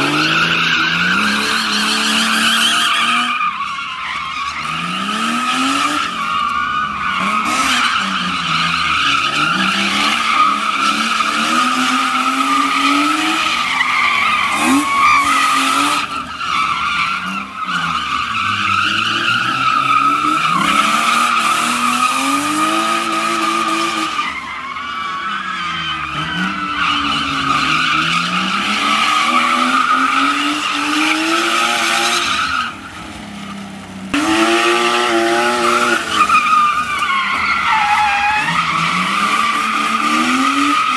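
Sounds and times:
car engine revving: 25.9s - 40.9s
tyres squealing: 34.5s - 40.9s.

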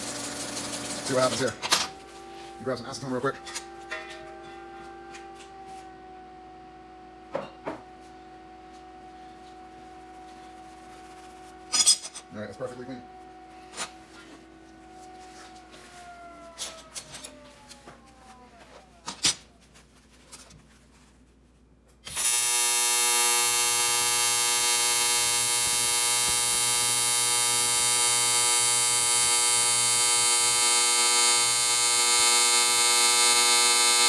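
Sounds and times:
welding arc buzzing: 0.0s - 1.6s, 22.0s - 34.0s.

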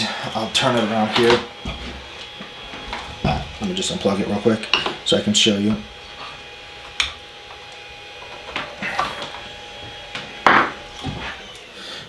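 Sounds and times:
printer scraping on countertop: 0.5s - 7.6s, 8.2s - 11.4s
printer knocking on countertop: 10.4s - 10.8s.

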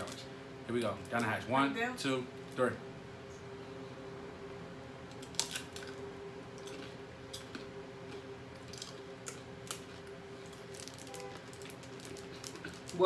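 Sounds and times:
tortilla chip crunching: 5.0s - 13.0s.

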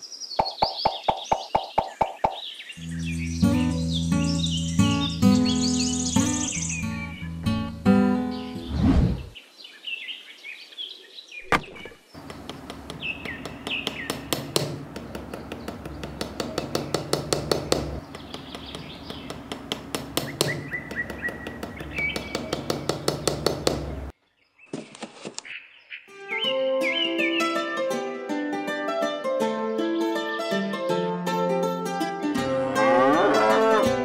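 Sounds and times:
birds chirping: 0.0s - 7.4s, 8.1s - 27.7s
hammer tapping a post: 0.4s - 2.4s, 12.2s - 24.1s.

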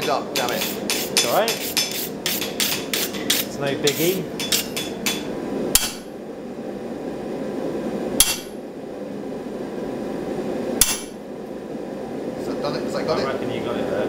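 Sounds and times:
hammer striking metal: 0.0s - 6.1s, 8.2s - 8.6s, 10.8s - 11.2s.

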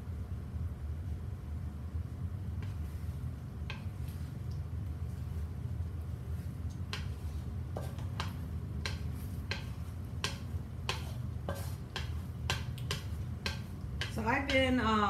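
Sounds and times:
steady low hum: 0.0s - 15.0s
spatula scraping against wok: 6.3s - 14.9s.

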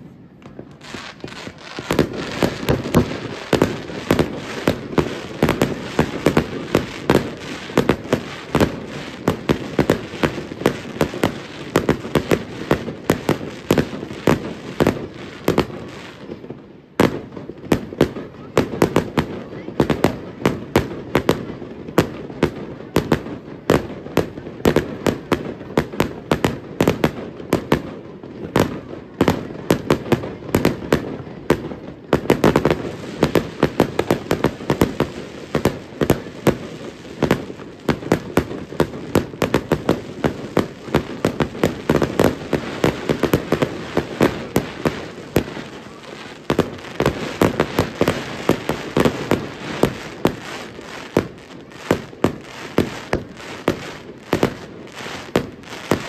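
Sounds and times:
fireworks bangs: 0.0s - 56.0s
fireworks crackling: 0.0s - 56.0s.

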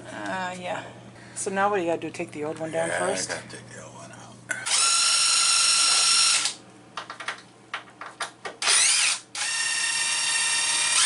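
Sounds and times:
cordless drill whining: 4.7s - 6.6s, 8.6s - 11.0s
clicks and knocks: 7.0s - 8.6s.

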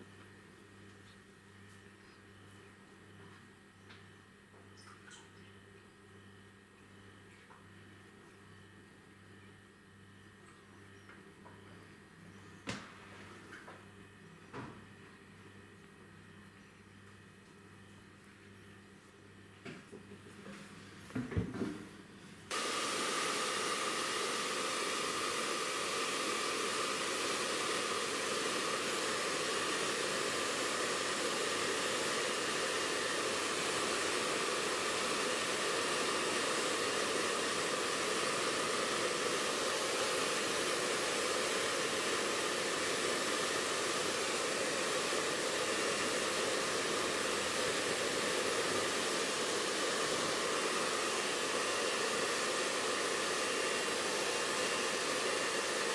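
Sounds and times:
hair dryer running: 22.5s - 55.9s.

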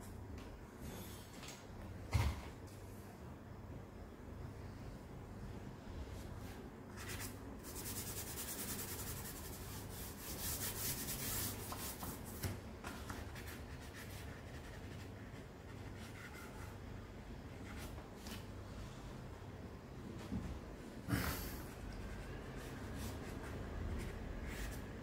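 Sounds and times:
charcoal scratching on paper: 7.0s - 12.5s, 13.1s - 16.8s, 21.9s - 25.0s.

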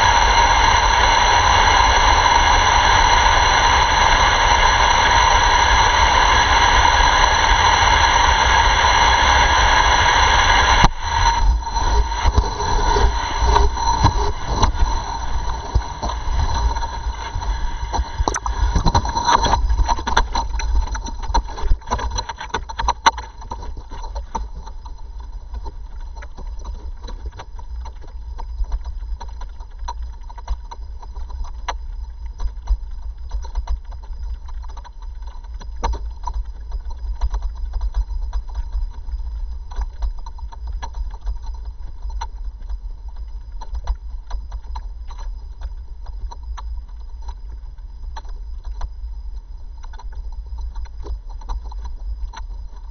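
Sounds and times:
wind buffeting microphone: 0.0s - 22.2s.

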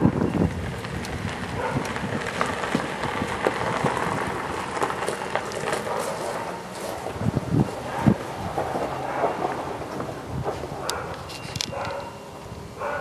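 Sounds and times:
tyres hissing on road: 0.0s - 11.1s.

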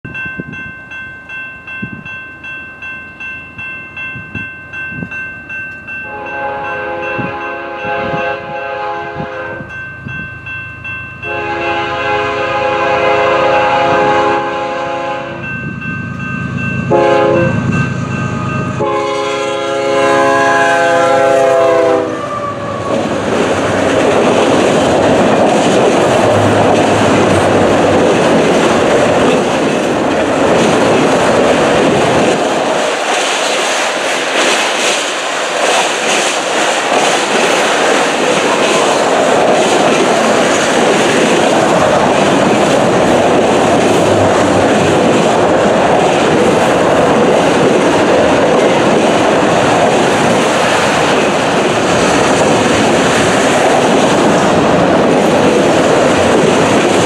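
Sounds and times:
train rumbling past: 0.1s - 57.0s
train air horn: 6.1s - 9.7s, 11.3s - 15.4s, 16.9s - 17.6s, 18.8s - 23.0s
train wheel clatter: 20.2s - 57.0s.

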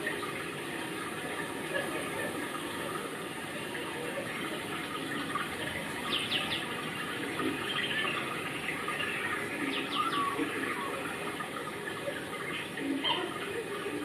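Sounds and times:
birds chirping: 3.7s - 14.0s.

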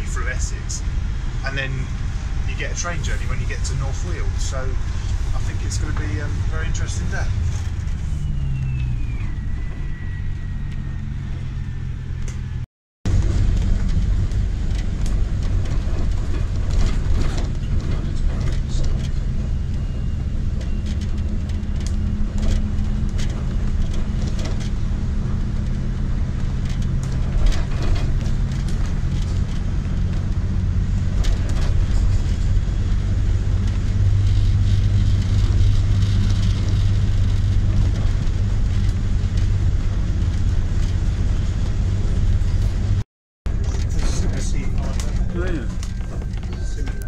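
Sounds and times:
bus diesel engine drone: 0.0s - 47.0s
rattles and knocks from bus body: 13.1s - 47.0s.

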